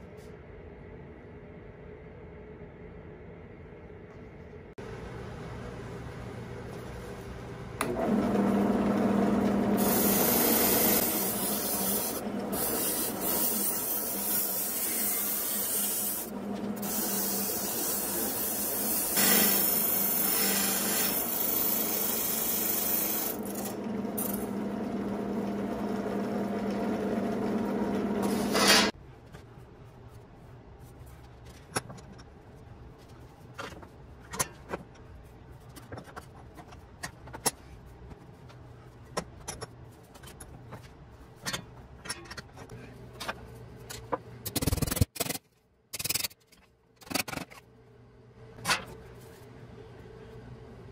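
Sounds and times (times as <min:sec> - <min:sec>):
drill press motor hum: 0:07.8 - 0:12.7, 0:23.3 - 0:28.9.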